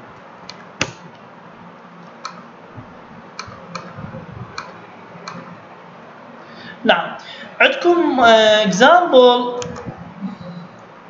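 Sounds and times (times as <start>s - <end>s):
faint room hiss: 0.0s - 11.0s
computer mouse clicking: 2.0s - 2.4s, 3.4s - 4.0s, 4.6s - 5.5s.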